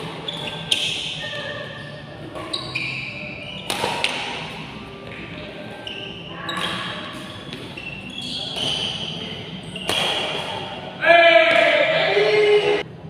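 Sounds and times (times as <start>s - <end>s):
court shoes squeaking: 0.0s - 11.6s
rackets hitting shuttlecock: 3.5s - 5.4s, 6.5s - 7.9s, 8.5s - 9.1s, 9.8s - 10.9s.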